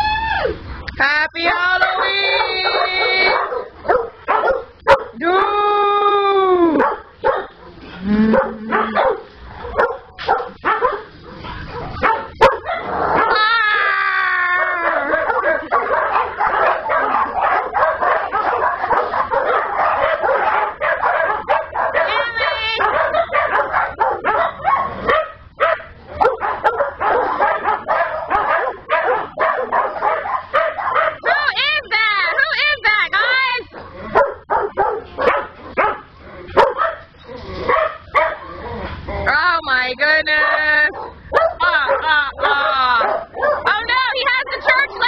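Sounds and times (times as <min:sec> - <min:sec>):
small dogs barking and yipping: 0:01.4 - 0:45.0
dog howling: 0:01.8 - 0:07.6, 0:08.2 - 0:10.0, 0:10.7 - 0:31.7.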